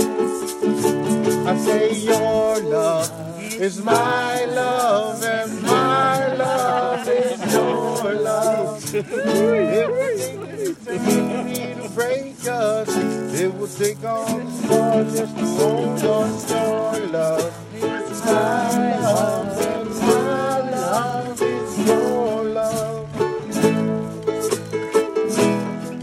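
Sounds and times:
ukulele and guitar strumming: 0.0 - 26.0
person singing: 1.3 - 23.9.

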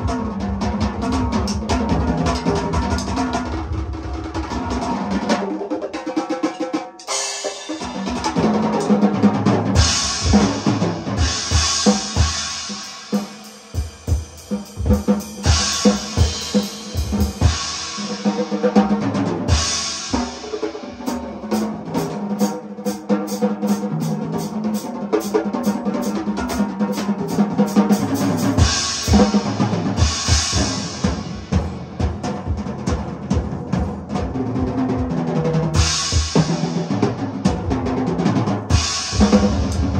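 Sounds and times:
music with drum kit: 0.0 - 39.9.

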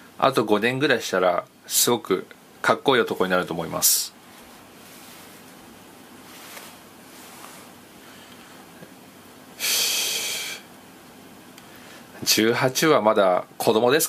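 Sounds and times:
faint steady hiss: 0.0 - 14.0
man breathing loudly: 9.6 - 10.7.

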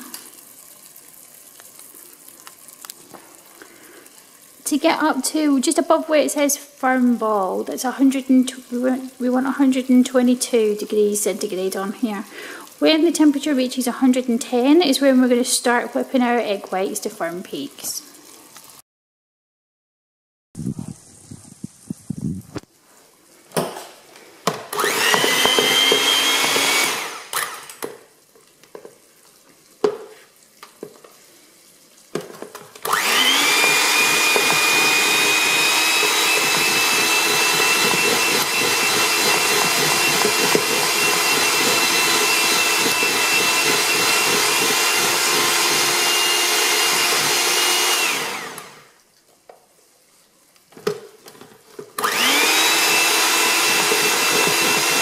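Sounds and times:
electric hand mixer whining: 24.6 - 27.9, 32.8 - 48.9, 52.0 - 55.0.

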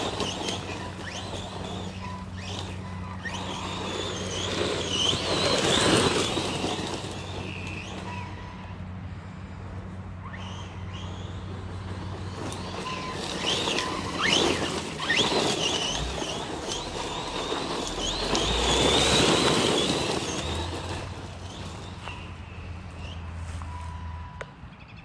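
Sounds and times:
electric motor whining: 0.0 - 8.8, 10.4 - 24.4
tyres rushing on dirt: 0.0 - 24.5.

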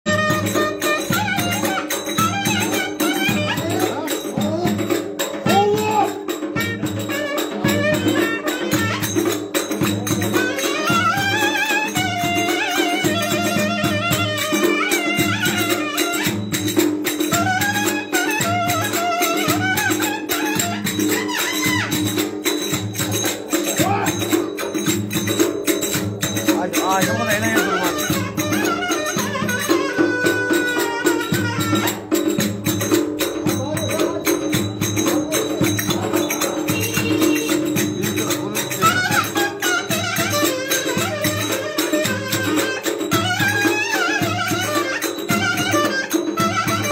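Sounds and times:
clarinet melody: 0.1 - 4.0, 6.4 - 9.4, 10.3 - 22.2, 26.8 - 32.4, 38.8 - 46.9
bass drum beat: 20.6 - 30.5.

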